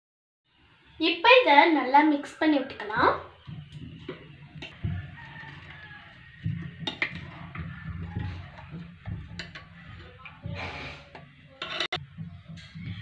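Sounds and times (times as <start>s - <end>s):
spoon stirring in glass bowl: 3.6s - 12.7s.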